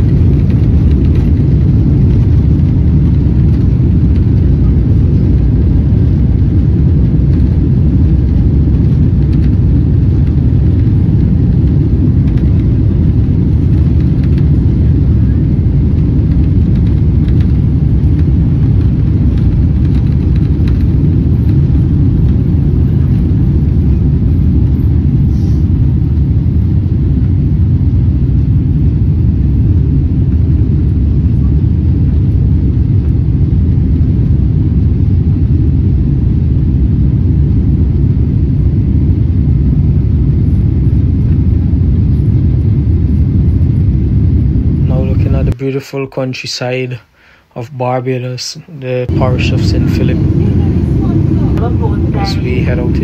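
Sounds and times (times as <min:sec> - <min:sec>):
light rattles in cabin: 0:00.0 - 0:24.0
jet engines rumbling on takeoff: 0:00.0 - 0:53.0.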